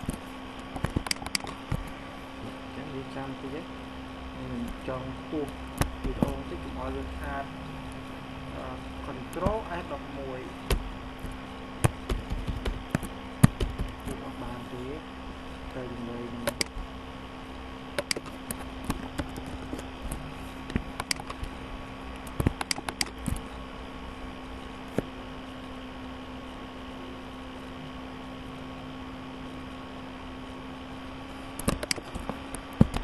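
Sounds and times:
computer electrical hum: 0.0 - 33.0
sharp input clicks: 0.8 - 1.8, 16.4 - 16.8, 17.9 - 21.6, 22.2 - 23.4, 31.6 - 32.2.

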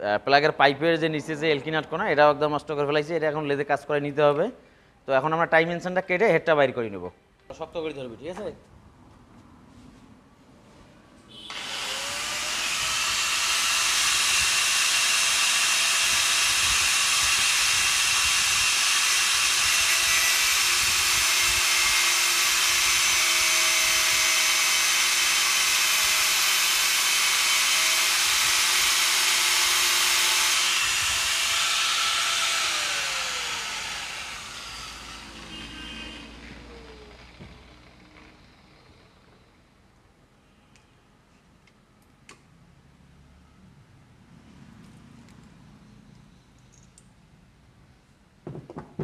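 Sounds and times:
angle grinder cutting steel: 11.4 - 39.2.

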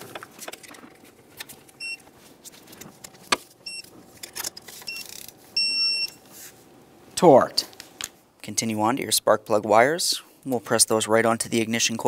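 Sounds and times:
torque wrench beeps: 3.6 - 3.9, 4.9 - 6.2.

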